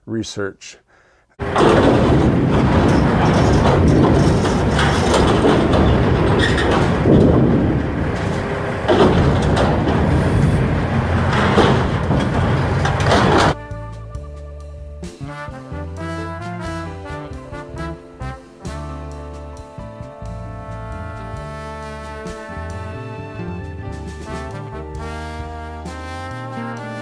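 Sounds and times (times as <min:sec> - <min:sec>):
debris cracking and crunching: 0:01.4 - 0:13.6
excavator engine running: 0:01.4 - 0:13.6, 0:22.2 - 0:25.3.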